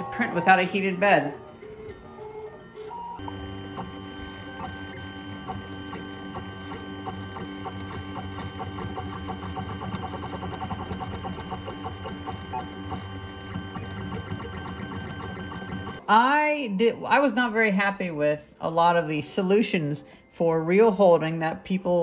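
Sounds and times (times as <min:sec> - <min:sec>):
stepper motors humming and whining: 0:00.0 - 0:16.0
rapid ticking of print head: 0:03.2 - 0:16.0.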